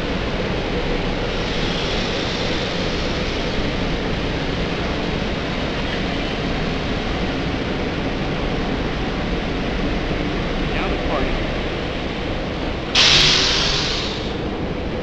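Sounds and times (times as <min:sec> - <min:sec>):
train wheels running: 0:00.0 - 0:15.0.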